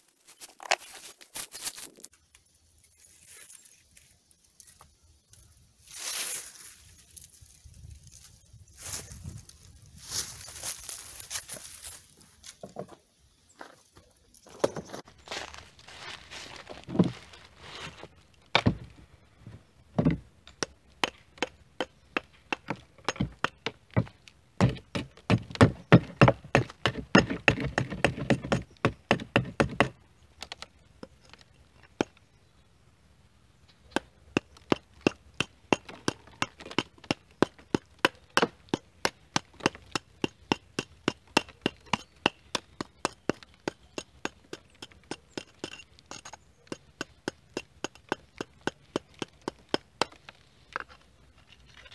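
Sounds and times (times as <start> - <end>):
hand tool chipping mortar off brick: 21.0 - 29.9, 33.9 - 50.2.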